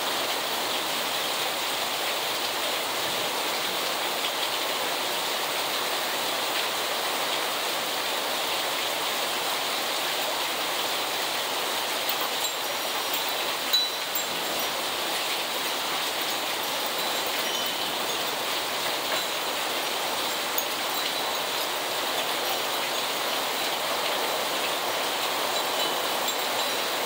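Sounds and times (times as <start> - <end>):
heavy rain pouring: 0.0 - 27.0
raindrops tapping close by: 12.1 - 27.0.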